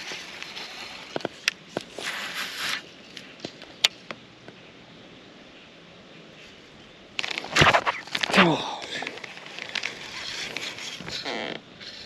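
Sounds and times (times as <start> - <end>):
brief hiss: 7.5 - 8.6.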